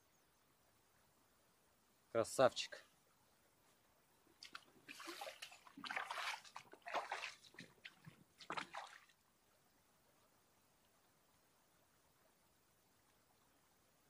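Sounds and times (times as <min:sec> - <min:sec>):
river water splashing: 0:04.4 - 0:09.2.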